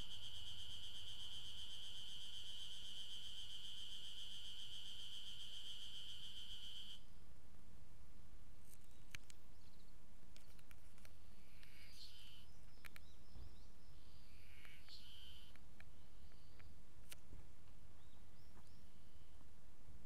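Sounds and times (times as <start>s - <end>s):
cicadas calling: 0.0s - 7.1s, 11.3s - 16.7s.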